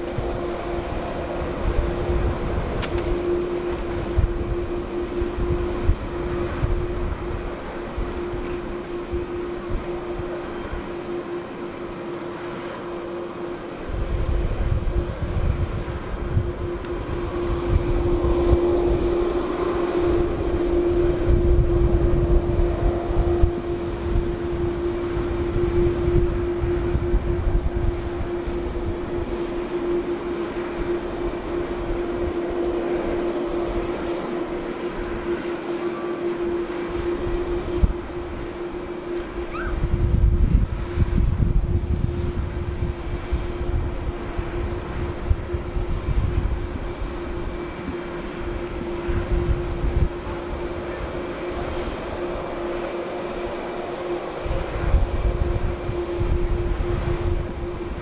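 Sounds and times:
jet engines at taxi idle: 0:00.0 - 0:58.0.

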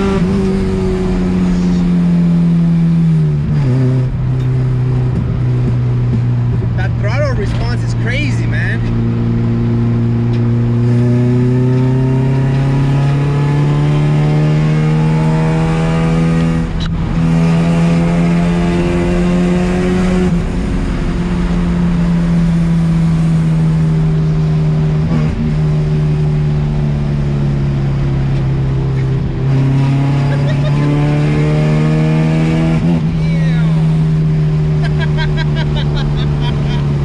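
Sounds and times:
car engine accelerating: 0:00.0 - 0:37.0.

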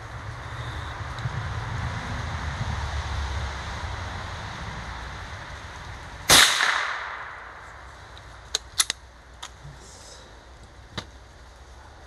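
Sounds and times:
rifle shot with echo: 0:06.3 - 0:07.7
light rifle bolt clicks: 0:08.1 - 0:09.6.

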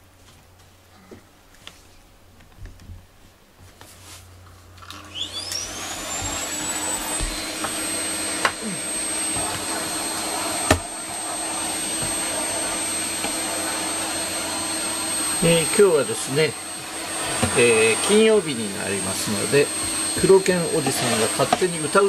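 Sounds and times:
vacuum cleaner motor whine: 0:04.8 - 0:22.0.

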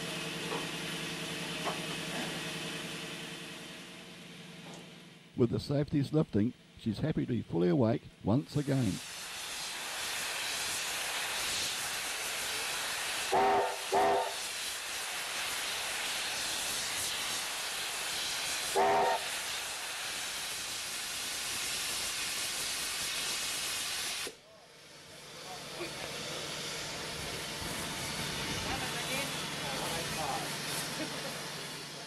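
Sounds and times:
steam safety valves hissing: 0:08.6 - 0:24.4
steam whistle toots: 0:13.2 - 0:14.7, 0:18.6 - 0:19.5.

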